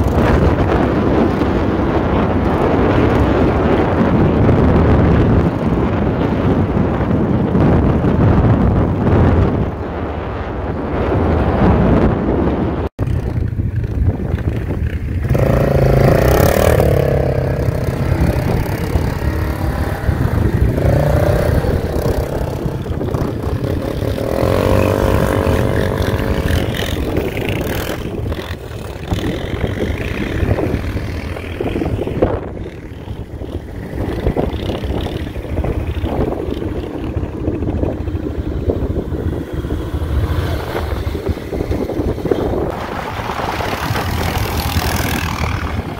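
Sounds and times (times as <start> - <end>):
steady rushing noise: 0.0 - 45.9
quad bike engine revving: 13.0 - 45.9.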